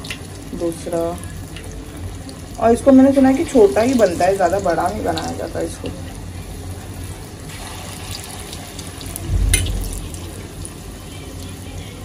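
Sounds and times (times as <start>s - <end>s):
food sizzling in hot oil: 0.0s - 12.0s
low thump with sharp click: 9.3s - 10.2s.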